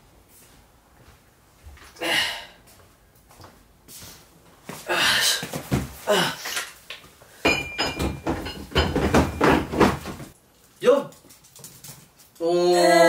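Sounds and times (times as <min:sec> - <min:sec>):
man breathing hard and grunting: 0:02.0 - 0:02.6, 0:04.8 - 0:06.6
weights knocking: 0:07.4 - 0:10.3.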